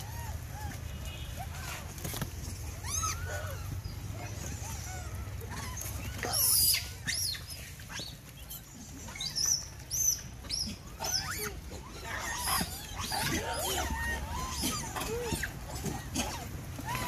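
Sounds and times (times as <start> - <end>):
monkeys squealing: 0.0 - 0.8, 2.6 - 17.0
monkey harsh screech: 2.8 - 3.7, 4.6 - 8.1, 9.1 - 17.0.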